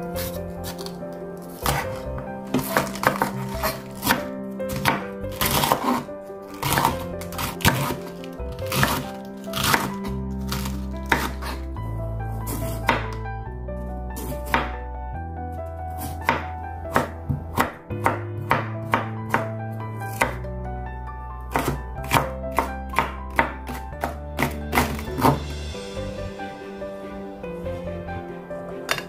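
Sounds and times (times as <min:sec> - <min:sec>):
background music: 0:00.0 - 0:29.0
knife chopping on wooden board: 0:01.6 - 0:11.6, 0:12.5 - 0:13.2, 0:14.2 - 0:14.7, 0:16.0 - 0:19.5, 0:20.1 - 0:20.4, 0:21.5 - 0:25.4.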